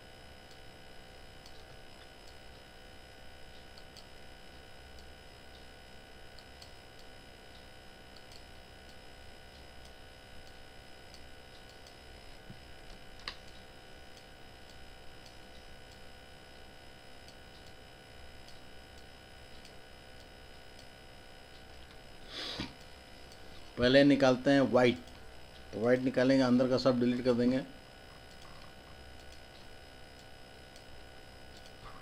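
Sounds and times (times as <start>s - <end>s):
electrical hum: 0.0s - 32.0s
computer mouse clicks: 6.4s - 9.0s, 18.4s - 19.8s, 28.2s - 30.9s, 31.5s - 31.9s.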